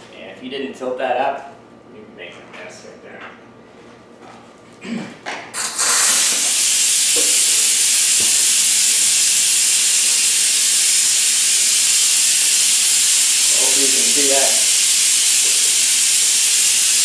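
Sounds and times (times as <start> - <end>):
loud hiss of compressed air: 5.5 - 17.0.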